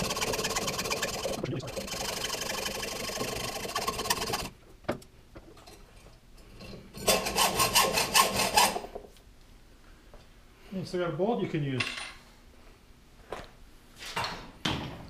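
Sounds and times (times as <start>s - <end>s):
hacksaw sawing through metal: 0.0s - 4.5s, 7.0s - 8.8s.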